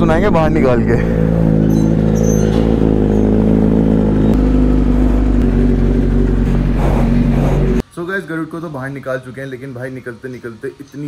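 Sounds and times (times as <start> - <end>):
motorcycle engine idling: 0.9 - 7.8.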